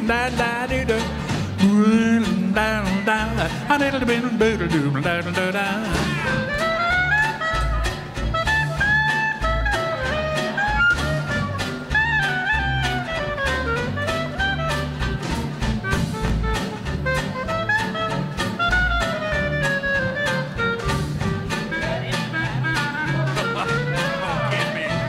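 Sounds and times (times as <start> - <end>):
drums keeping a beat: 0.0 - 25.0
plucked upright bass: 0.0 - 25.0
swing jazz band playing: 0.0 - 25.0
clarinet melody: 6.0 - 25.0.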